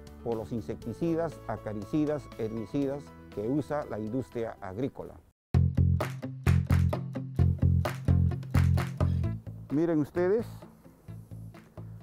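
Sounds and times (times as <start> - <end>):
background music with bass and beat: 5.6 - 12.0.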